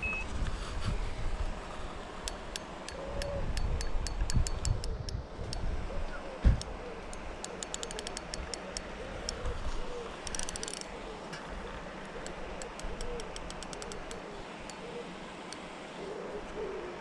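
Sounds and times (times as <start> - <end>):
bird calling: 2.9 - 3.9, 4.8 - 17.0
fishing reel clicking: 7.1 - 9.4, 10.2 - 10.9, 12.2 - 14.8.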